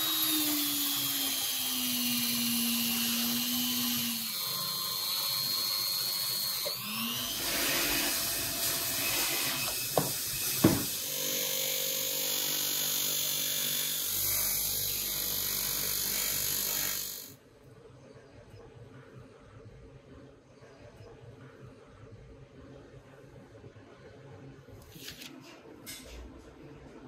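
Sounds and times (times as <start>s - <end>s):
power tools grinding metal: 0.0s - 17.4s.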